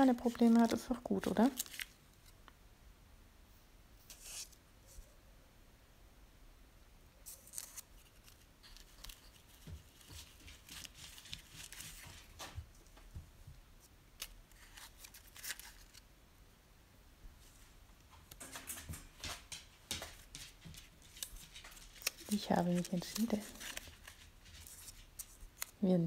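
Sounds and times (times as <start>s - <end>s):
paper labels rustling: 0.0s - 2.4s, 7.2s - 13.0s, 13.8s - 16.0s, 17.5s - 26.0s.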